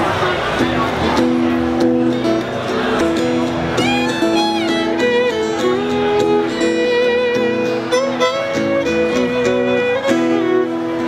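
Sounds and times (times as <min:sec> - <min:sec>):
strummed acoustic guitar: 0:00.0 - 0:11.0
fiddle bowing long notes: 0:03.8 - 0:11.0.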